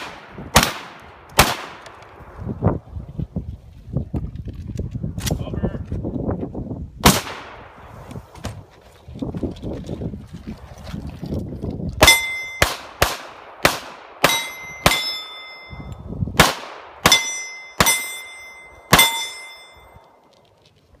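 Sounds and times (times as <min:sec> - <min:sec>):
pistol shots: 0:00.0 - 0:02.0, 0:07.0 - 0:07.7, 0:12.0 - 0:15.4, 0:16.4 - 0:19.4
steel plate targets clanging: 0:14.2 - 0:15.9, 0:17.1 - 0:20.0.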